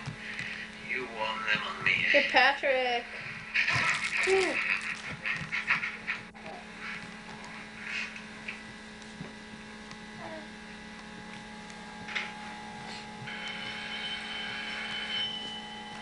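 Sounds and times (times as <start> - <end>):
electrical hum: 0.0 - 16.0
high steady tone: 11.9 - 16.0.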